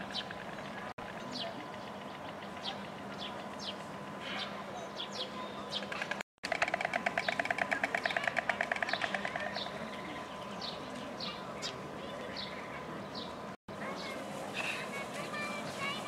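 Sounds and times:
small birds chirping: 0.0 - 16.0
storks clattering bills: 5.7 - 10.0.

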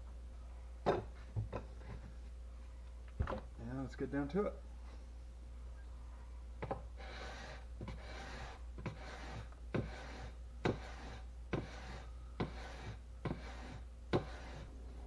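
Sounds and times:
blade scraping on whetstone: 7.0 - 14.7.

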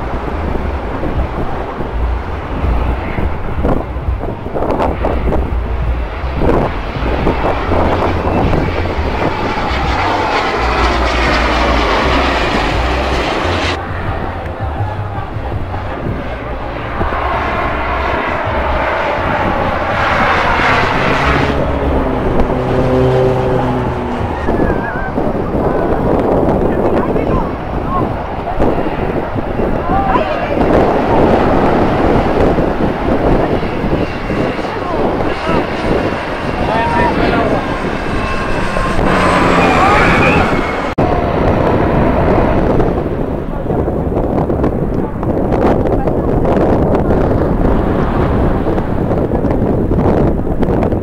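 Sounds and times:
airliner passing overhead: 0.0 - 51.0
wind buffeting microphone: 0.0 - 51.0.

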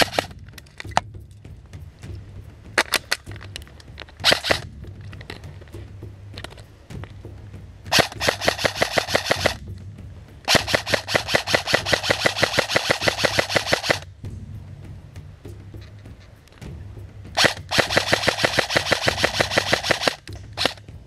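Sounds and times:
airsoft rifle automatic fire: 0.0 - 0.3, 4.2 - 4.6, 7.9 - 9.6, 10.5 - 14.1, 17.4 - 20.8.

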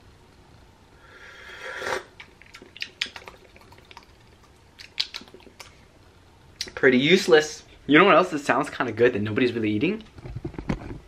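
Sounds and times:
slurping sip of tea: 1.2 - 2.2.

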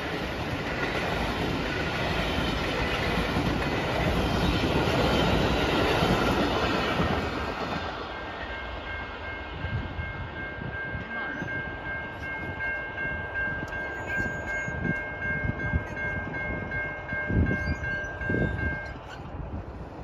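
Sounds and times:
crossing bell dinging: 0.0 - 19.5.

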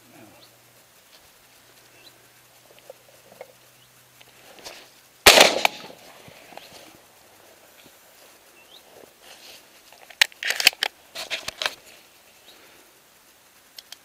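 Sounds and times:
shotgun handling clicks and clatters: 5.3 - 6.8, 10.0 - 11.8.

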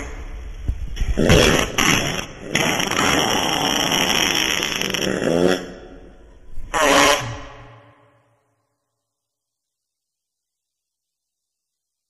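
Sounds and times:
wet fart sound effect: 1.0 - 5.7, 6.7 - 7.7.

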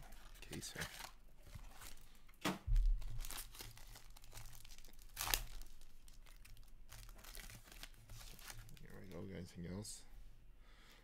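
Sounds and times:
foil pack tearing and crinkling: 3.0 - 8.9.

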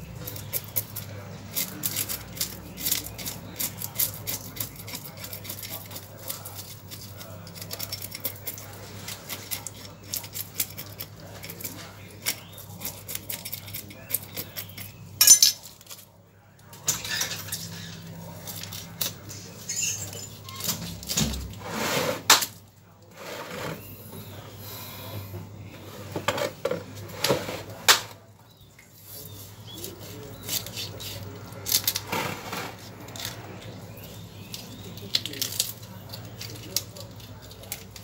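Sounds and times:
knife scraping fish scales: 0.1 - 16.0, 29.1 - 38.0.

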